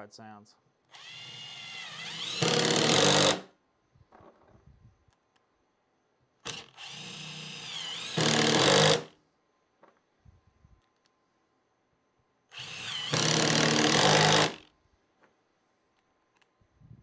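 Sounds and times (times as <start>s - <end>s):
impact driver motor whining: 0.9s - 3.4s, 6.5s - 9.1s, 12.5s - 14.6s.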